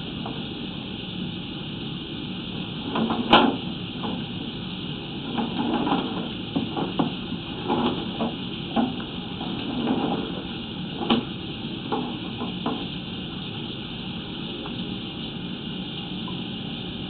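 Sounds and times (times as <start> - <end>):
steady hiss: 0.0 - 17.0
camera knocking inside a pipe: 11.9 - 12.9.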